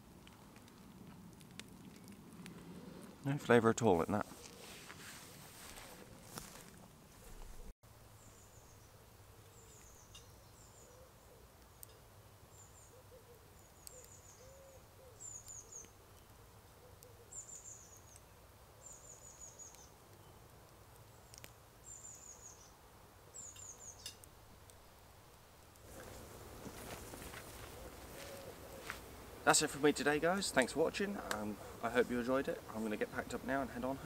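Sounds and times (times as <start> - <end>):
small bird chirping: 8.2 - 11.9, 12.5 - 20.4, 21.1 - 24.3.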